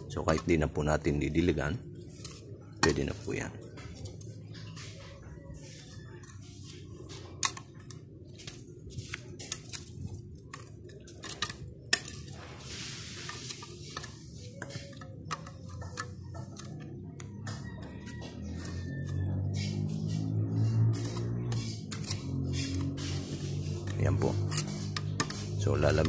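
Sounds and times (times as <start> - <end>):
trowel scraping soil: 8.6 - 16.7, 18.0 - 26.0.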